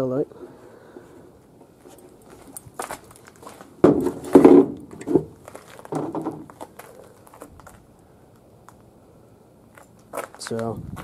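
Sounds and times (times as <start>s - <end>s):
plastic rustles and knocks: 3.5s - 6.7s.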